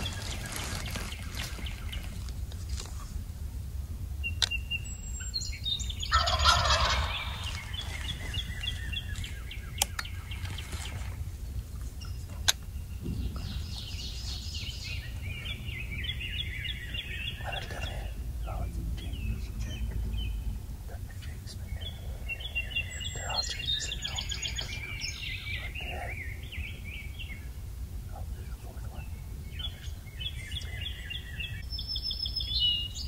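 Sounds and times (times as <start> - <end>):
steady low rumble: 0.0 - 33.0
high bird chirps: 4.2 - 33.0
turkey gobbling: 6.0 - 10.4
sharp clicks: 9.2 - 10.2.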